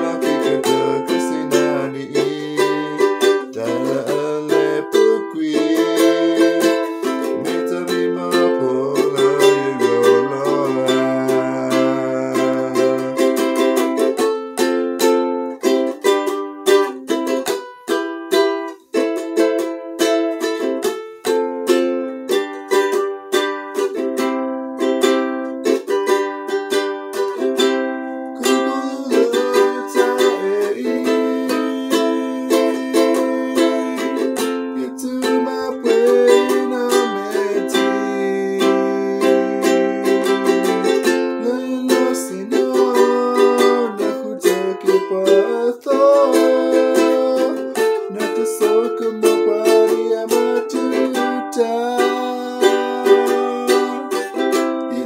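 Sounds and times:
man singing: 0.0 - 14.3, 28.2 - 55.0
ukulele strummed: 0.0 - 55.0.

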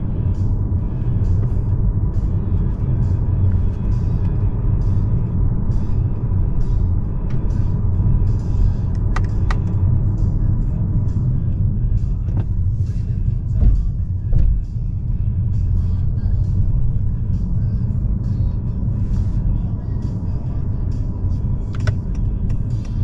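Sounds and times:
road and tyre rumble in car: 0.0 - 23.0
short thumps: 13.5 - 14.7.

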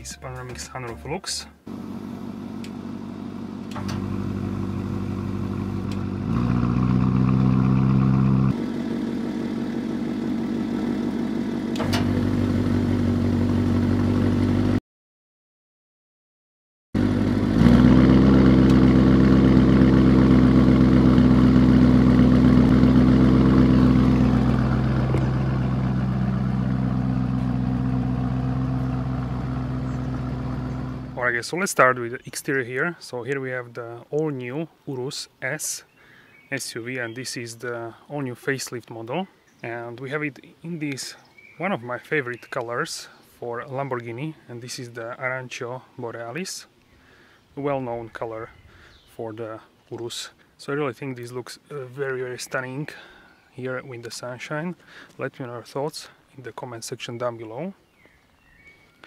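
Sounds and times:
car engine exhaust revving: 1.7 - 14.8, 17.0 - 31.2.

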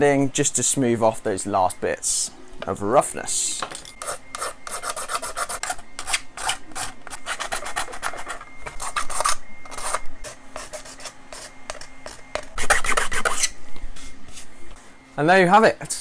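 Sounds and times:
hand sanding plastic: 4.0 - 13.5.

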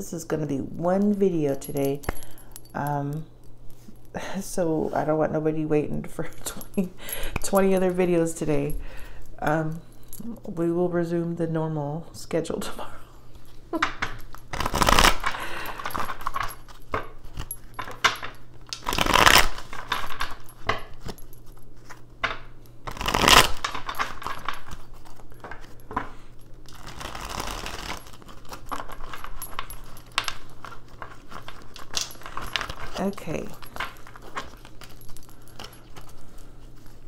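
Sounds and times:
cards shuffling: 14.0 - 18.1, 18.7 - 37.0.

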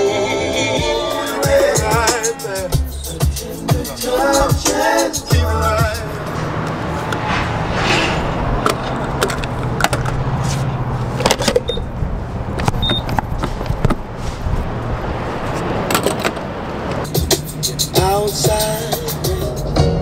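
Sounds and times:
fuel pump clicks and clunks: 11.2 - 11.9
fuel pump beeps: 11.6 - 11.9, 12.8 - 13.1.

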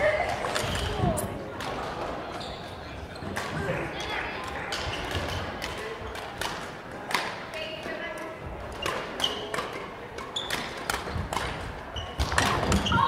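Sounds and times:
sneakers squeaking on court: 2.3 - 3.4, 8.8 - 13.0
racket hitting shuttlecock: 4.5 - 7.5, 8.7 - 12.9.

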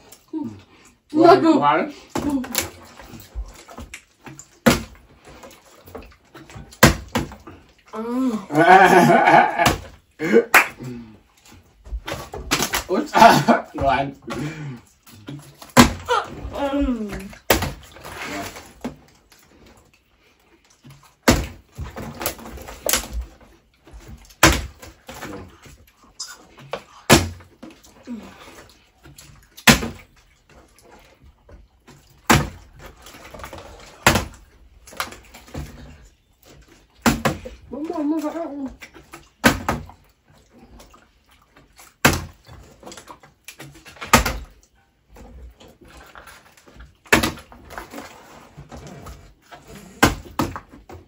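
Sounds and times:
plastic bottle landing thuds: 4.6 - 5.0, 6.6 - 7.4, 15.7 - 16.1, 17.5 - 18.0, 21.2 - 23.2, 24.4 - 24.9, 27.1 - 27.5, 29.6 - 30.1, 33.5 - 34.4, 37.0 - 37.5, 39.4 - 39.9, 42.0 - 42.4, 44.0 - 44.5, 47.1 - 47.5.

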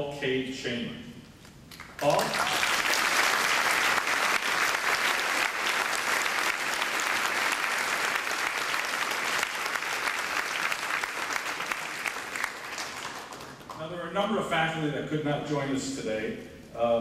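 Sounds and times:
audience applauding: 1.8 - 13.8.

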